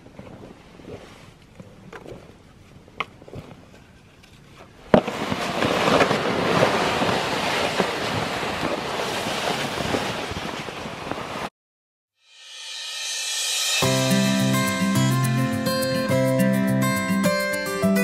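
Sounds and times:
sled dragged over snow: 2.6 - 11.5.

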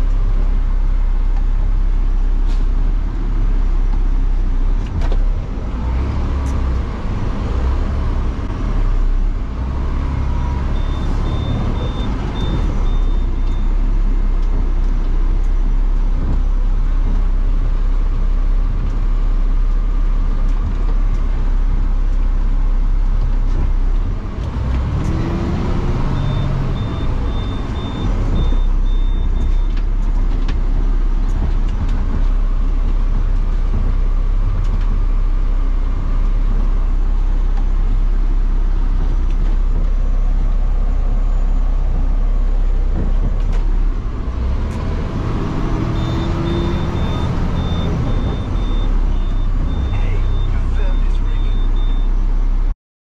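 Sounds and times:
garbage truck engine running: 0.0 - 52.7
electronic beeper short beeps: 46.0 - 52.1.

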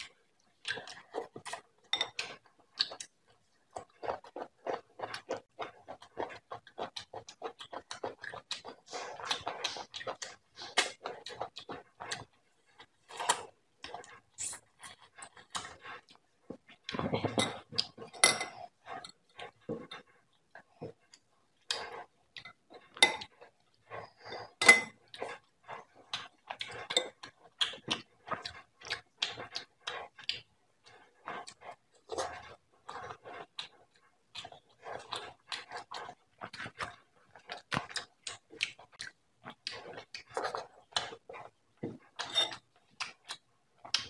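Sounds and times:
lips smacking and chewing: 17.8 - 44.0.

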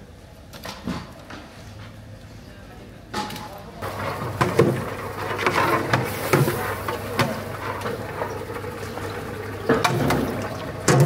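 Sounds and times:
hands mixing sauce in pot: 3.8 - 11.0.

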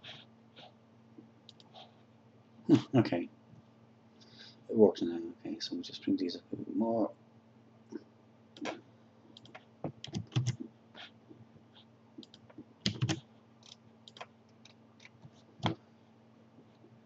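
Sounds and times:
faint low hum: 0.0 - 17.0
keyboard keys and mouse clicking: 1.5 - 1.7, 9.4 - 10.6, 12.2 - 15.8.

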